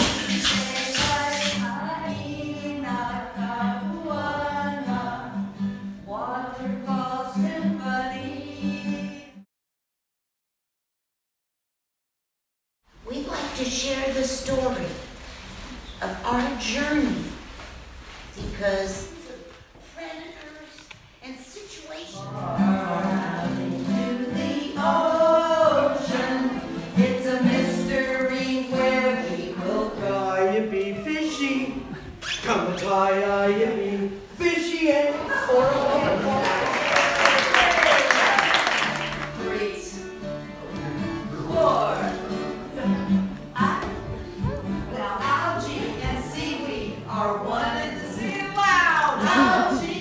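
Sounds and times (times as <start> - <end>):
group of voices singing: 0.0 - 9.4, 22.2 - 37.1, 41.0 - 48.3, 49.1 - 50.0
children singing in unison: 49.2 - 50.0.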